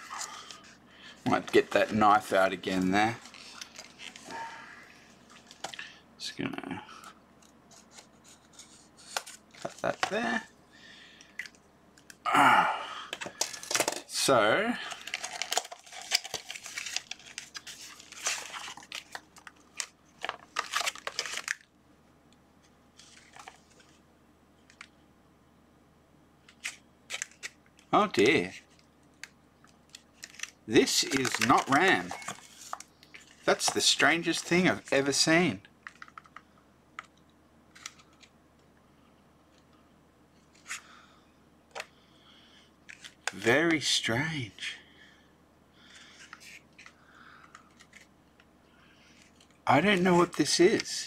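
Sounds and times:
plastic packaging crinkling: 0:13.1 - 0:14.2, 0:14.8 - 0:21.7, 0:26.5 - 0:27.6, 0:28.6 - 0:35.2.

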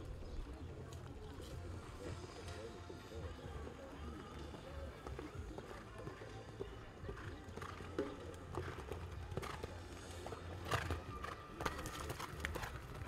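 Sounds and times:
horse hoofbeats on sand: 0:00.4 - 0:13.0.

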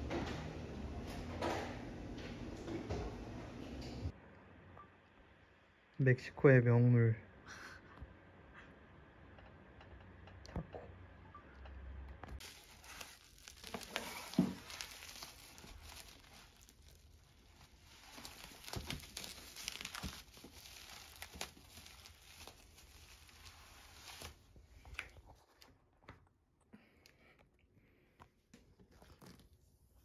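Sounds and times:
packaging crinkling and tearing: 0:12.4 - 0:25.7.

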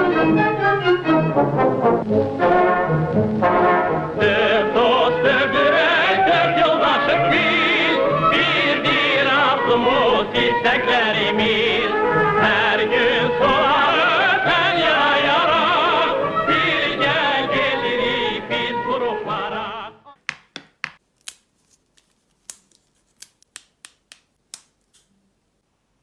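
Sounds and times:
song with singing and instruments: 0:03.6 - 0:20.1
breadsticks snapping: 0:20.2 - 0:25.2.

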